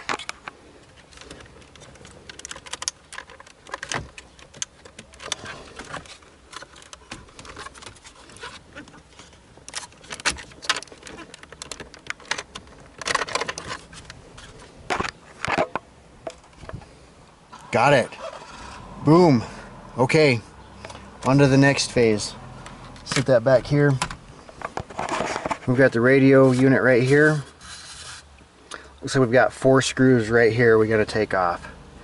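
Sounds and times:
plastic clicks and rattles: 0:00.0 - 0:14.2.

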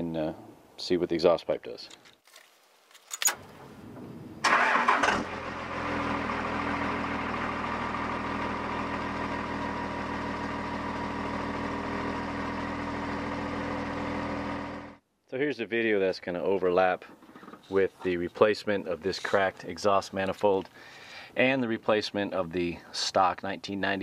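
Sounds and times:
diesel engine cranking and idling: 0:03.6 - 0:15.0.

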